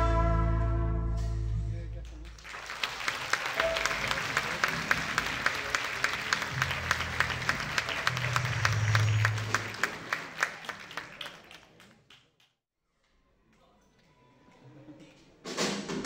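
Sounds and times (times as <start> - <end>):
audience applauding: 2.0 - 12.4.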